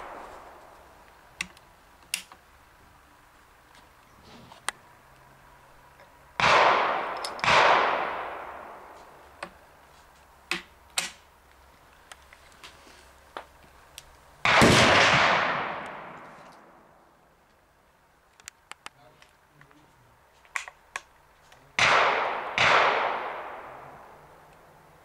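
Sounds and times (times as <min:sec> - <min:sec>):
rifle gunshots echoing: 0:00.0 - 0:00.6, 0:06.4 - 0:09.0, 0:14.4 - 0:16.8, 0:21.8 - 0:24.2.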